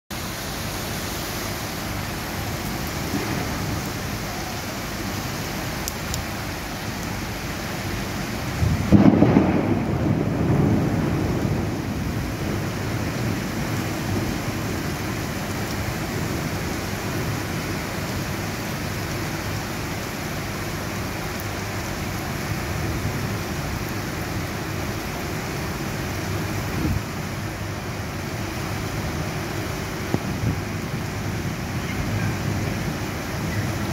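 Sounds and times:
heavy rain falling: 0:00.1 - 0:33.9
thunder clap and rumble: 0:02.6 - 0:04.0, 0:08.4 - 0:18.4, 0:29.2 - 0:33.9.

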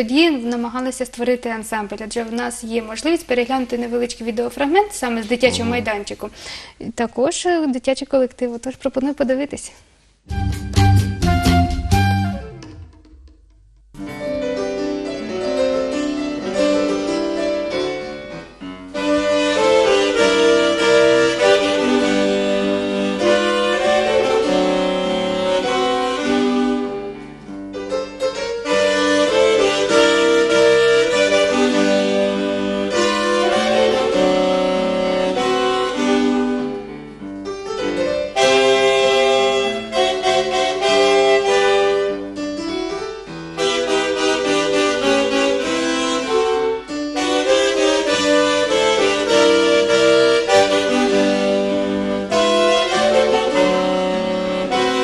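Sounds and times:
piano accompaniment: 0:04.5 - 0:06.2, 0:10.3 - 0:55.0
saxophones playing in harmony: 0:05.4 - 0:06.0, 0:10.3 - 0:12.7, 0:18.9 - 0:27.4, 0:28.6 - 0:37.0, 0:38.3 - 0:42.5, 0:43.5 - 0:55.0.

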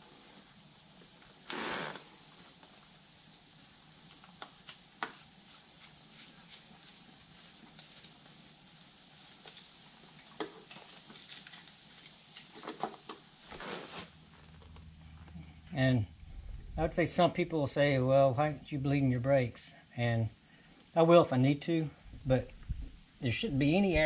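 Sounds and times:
steady high hiss: 0:00.0 - 0:24.0
short rustle: 0:13.4 - 0:15.6.

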